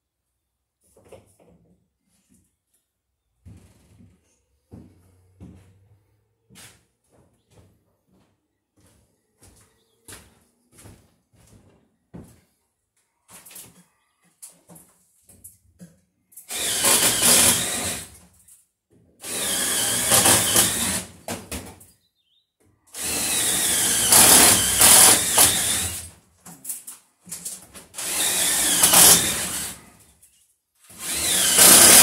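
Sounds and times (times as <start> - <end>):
power drill boring into wood: 16.5 - 18.2, 19.2 - 21.2, 22.9 - 26.1, 28.0 - 30.0, 30.9 - 32.0.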